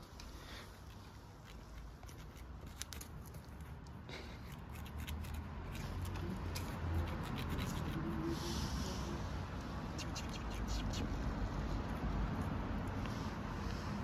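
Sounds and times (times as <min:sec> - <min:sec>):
kitten claws scratching: 0:00.6 - 0:08.3, 0:09.6 - 0:13.6
twig scraping on concrete: 0:00.7 - 0:08.1.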